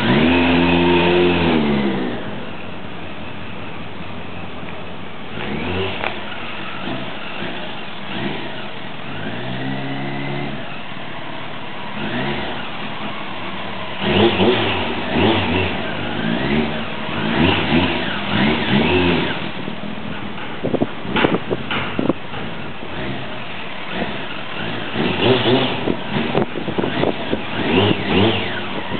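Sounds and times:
motorcycle passing by: 0.0 - 2.5, 5.3 - 10.9, 11.8 - 19.7, 22.9 - 28.9.

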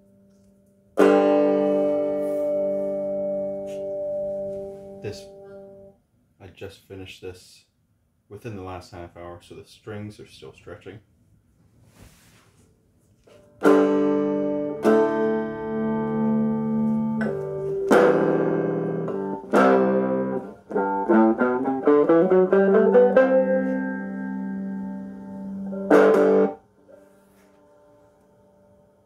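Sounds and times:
picked single guitar notes: 0.2 - 5.9, 13.6 - 26.6
electric guitar strummed chords: 1.0 - 5.9, 13.6 - 26.6.

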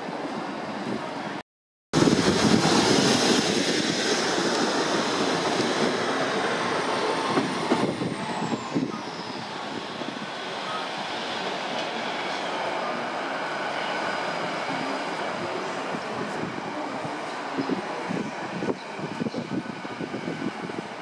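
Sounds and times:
train engines and wheels rumbling: 0.0 - 1.4, 2.0 - 21.0.

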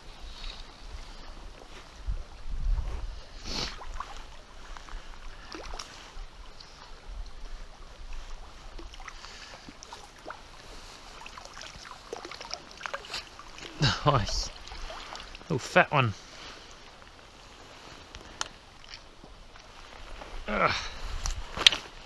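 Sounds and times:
fish splashing in shallow water: 3.5 - 15.5.

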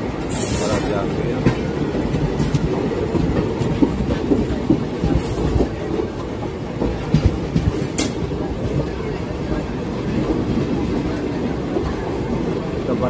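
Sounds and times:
train wheels rumbling on track: 0.0 - 13.0
clatter over rail joints: 0.2 - 9.0.

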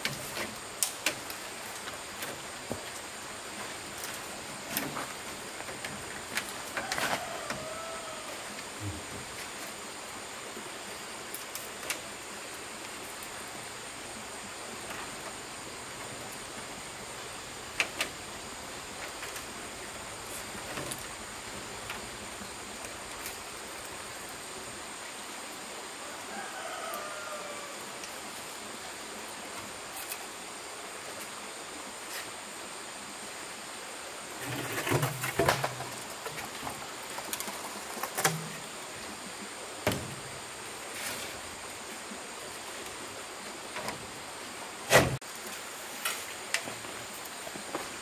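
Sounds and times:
steady hiss: 0.0 - 48.0
faint rooster crowing: 6.6 - 9.1, 25.9 - 28.2.

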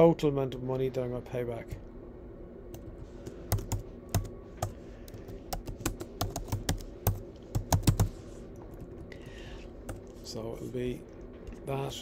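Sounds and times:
typing on computer keyboard: 3.5 - 8.1.

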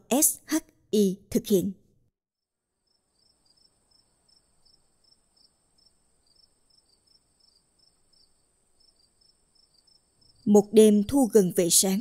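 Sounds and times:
high-pitched insect trill: 2.8 - 10.5
crickets chirping: 2.8 - 11.1.

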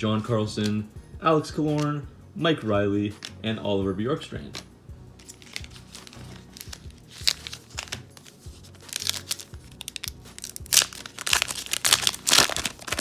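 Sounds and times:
wrapper crinkling and tearing: 5.2 - 13.0.

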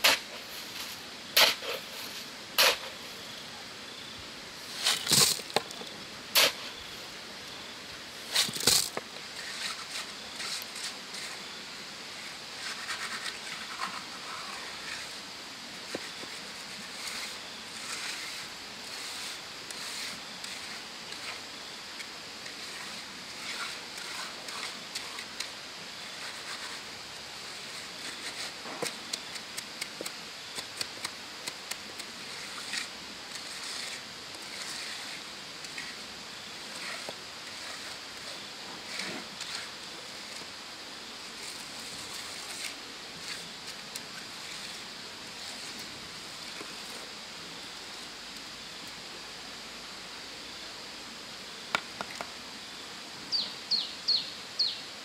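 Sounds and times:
trowel scraping wet cement: 0.0 - 3.0, 8.3 - 11.5, 12.2 - 15.2, 15.9 - 40.4
high outdoor background hiss: 0.0 - 55.0.

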